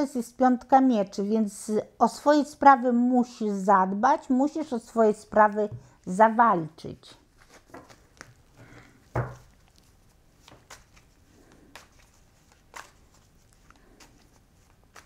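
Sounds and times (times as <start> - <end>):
cards being shuffled: 7.3 - 15.0.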